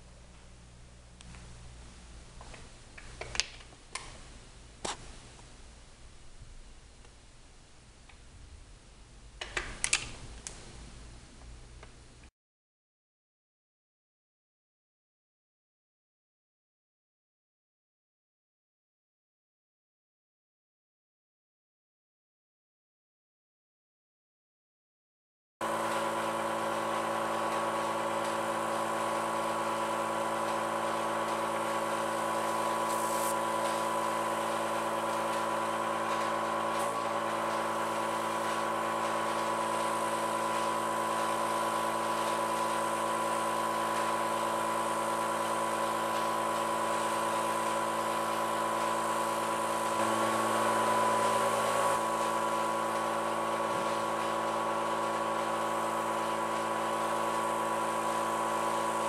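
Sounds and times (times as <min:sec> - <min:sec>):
air compressor humming: 0:25.6 - 0:59.0
airbrush spraying hiss: 0:31.3 - 0:35.3.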